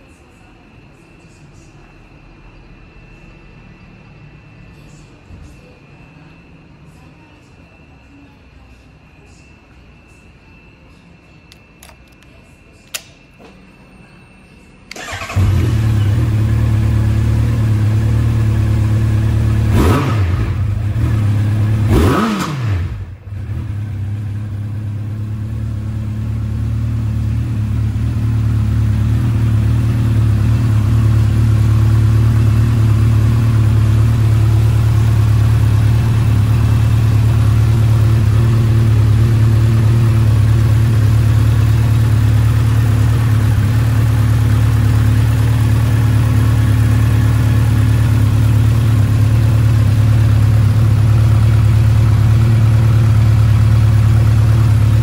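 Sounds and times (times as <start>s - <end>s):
motorcycle engine idling and revving: 14.9s - 55.0s.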